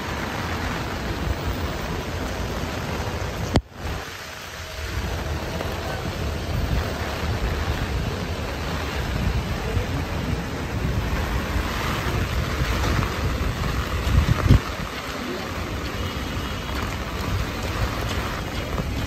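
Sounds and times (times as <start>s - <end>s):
heavy rain on wet street: 0.0s - 19.0s
wind buffeting microphone: 0.0s - 19.0s.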